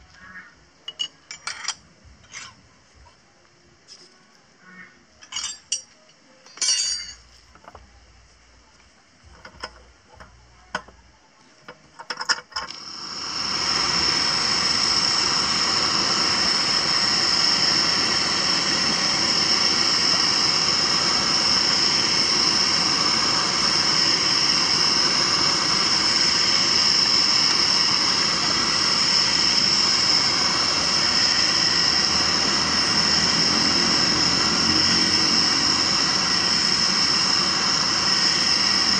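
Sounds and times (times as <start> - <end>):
metal clinks and knocks: 6.5 - 7.8
burner hissing: 11.9 - 38.9.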